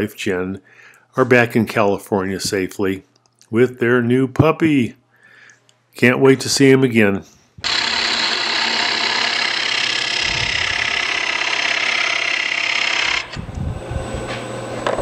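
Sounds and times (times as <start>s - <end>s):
lathe humming: 7.6s - 15.0s.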